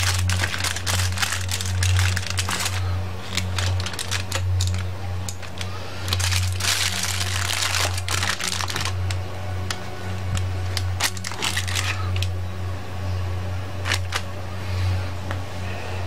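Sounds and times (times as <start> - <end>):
aluminium foil crinkling: 0.0 - 12.3, 13.8 - 14.3
steady low hum: 0.0 - 16.0.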